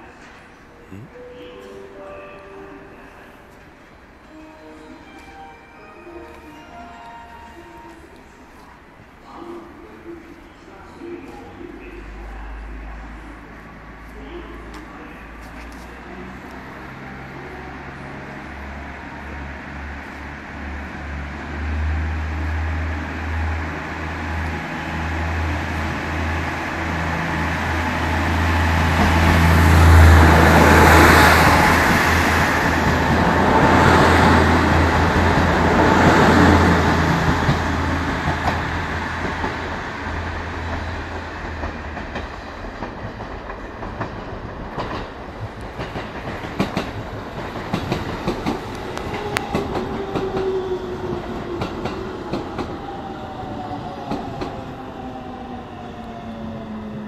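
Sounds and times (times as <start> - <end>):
diesel train engines droning: 10.6 - 44.0, 45.0 - 57.0
train wheels clacking on rail joints: 40.6 - 52.7.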